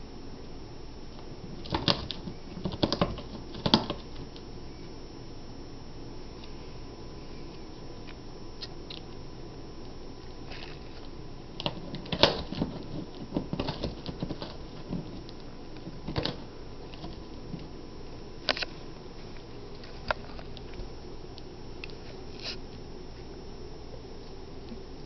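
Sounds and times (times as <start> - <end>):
cat chewing cardboard: 1.5 - 4.5, 10.2 - 23.2.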